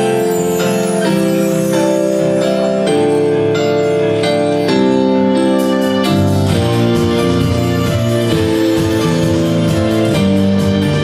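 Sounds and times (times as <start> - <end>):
held keyboard chords: 0.0 - 11.0.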